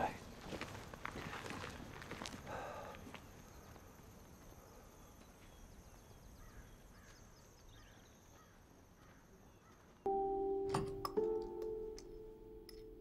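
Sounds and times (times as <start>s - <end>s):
distant bird calls: 2.6s - 10.1s.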